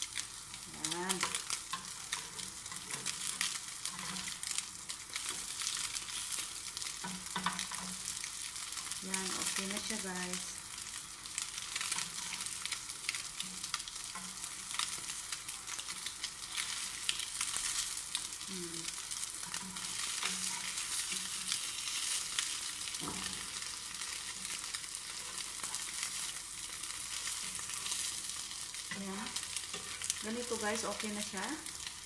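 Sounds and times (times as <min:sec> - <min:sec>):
bread sizzling in a pan: 0:00.0 - 0:32.0
spatula scraping and tapping pan: 0:01.2 - 0:08.1, 0:19.2 - 0:28.2, 0:29.6 - 0:30.2.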